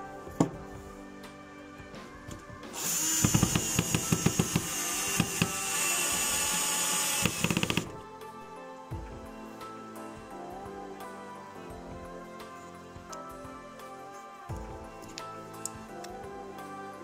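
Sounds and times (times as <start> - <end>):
cordless drill driving screws: 2.7 - 8.0
rapid sharp clicks: 2.8 - 8.0.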